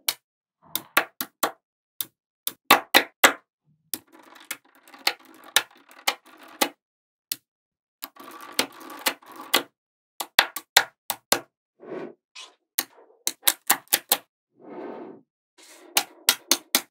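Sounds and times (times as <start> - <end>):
magnetic balls clicking: 3.9 - 7.4, 8.0 - 11.3.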